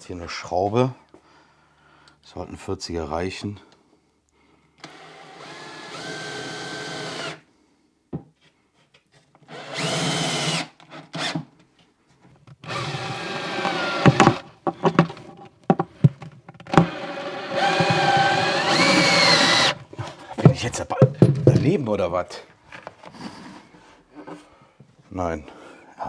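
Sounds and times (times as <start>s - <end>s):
cordless drill motor whining: 4.8s - 7.4s, 9.5s - 11.4s, 12.6s - 14.4s, 16.7s - 19.9s.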